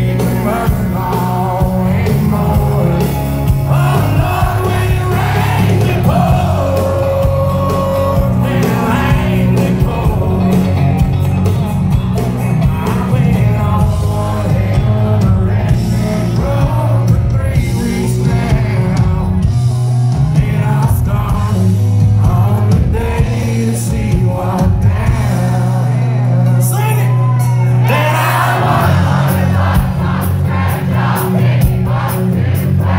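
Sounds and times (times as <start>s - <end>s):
person singing: 0.0s - 11.0s
acoustic guitar: 0.0s - 32.9s
electric bass: 0.0s - 32.9s.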